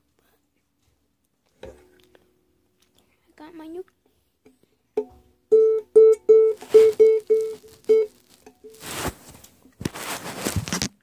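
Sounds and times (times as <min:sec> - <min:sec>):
rustling handling noises: 0:06.5 - 0:11.0.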